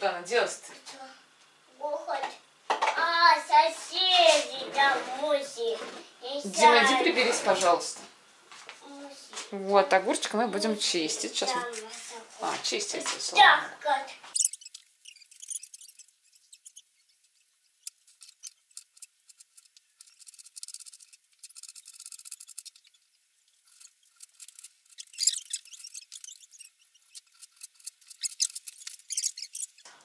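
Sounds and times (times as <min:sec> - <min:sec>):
peeler scraping cucumber: 0:23.7 - 0:29.9.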